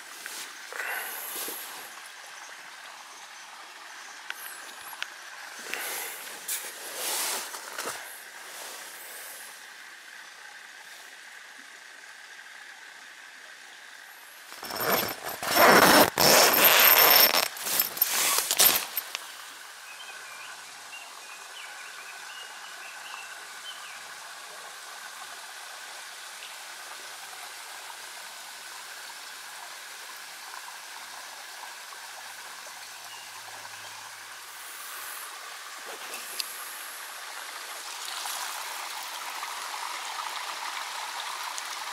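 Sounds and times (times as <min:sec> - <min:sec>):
stream running over rocks: 0:00.0 - 0:41.9.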